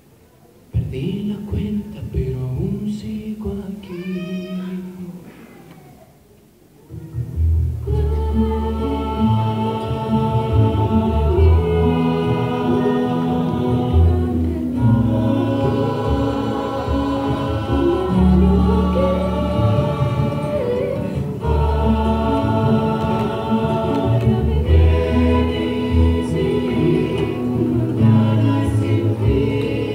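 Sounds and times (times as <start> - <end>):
acoustic guitars: 7.0 - 29.9
double bass: 7.2 - 29.9
group of voices singing harmonies: 7.7 - 29.9.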